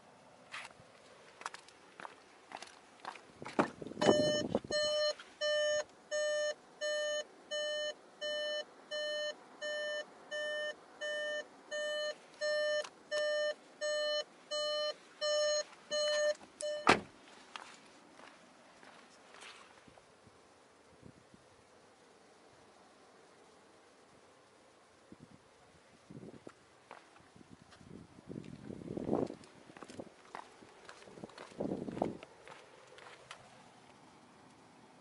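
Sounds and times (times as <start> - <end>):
car warning chime beeping: 4.0 - 17.0
car door slamming: 16.7 - 17.2.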